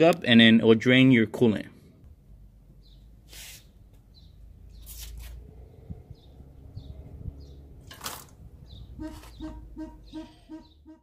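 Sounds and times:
small bird chirping: 0:02.8 - 0:07.7
short hissing swishes: 0:03.2 - 0:03.8, 0:04.8 - 0:05.4.

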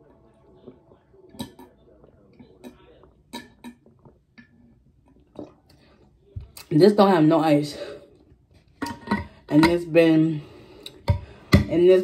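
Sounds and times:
person gulping a drink: 0:05.1 - 0:05.8.

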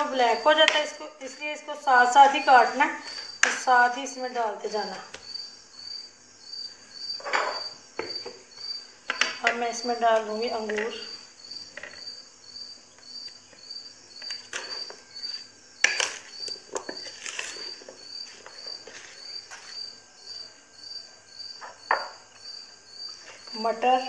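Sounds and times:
insect chirping: 0:00.0 - 0:24.0
spatula knocking and scraping: 0:14.3 - 0:19.7.

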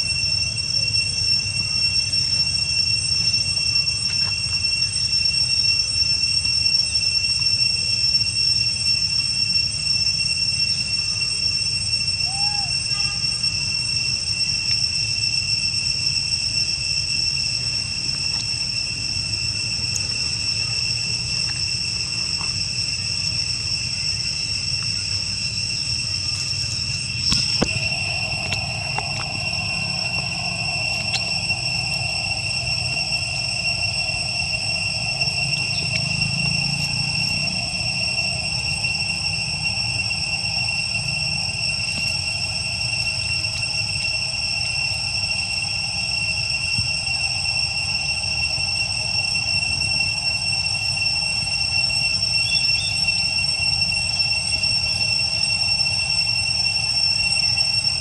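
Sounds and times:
high-pitched insect chorus: 0:00.0 - 0:58.0
low steady tone: 0:26.6 - 0:38.6
low rumble: 0:27.0 - 0:35.9.

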